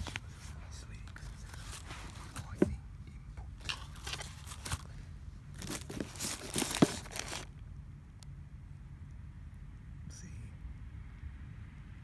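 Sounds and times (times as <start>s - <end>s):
packaging rustling and crinkling: 0.0s - 0.2s, 3.6s - 4.9s, 5.5s - 7.5s.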